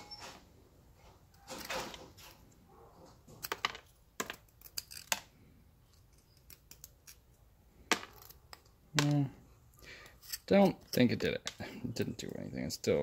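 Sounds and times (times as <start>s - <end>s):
razor blade scraping carbon: 10.0s - 11.3s.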